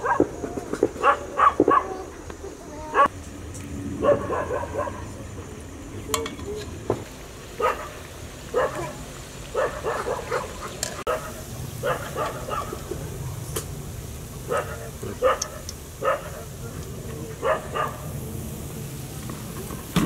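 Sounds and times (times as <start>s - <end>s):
dog barking: 0.0s - 0.3s, 0.9s - 2.1s, 2.8s - 3.1s, 4.0s - 5.2s, 7.6s - 12.9s, 14.5s - 16.6s, 17.3s - 18.1s.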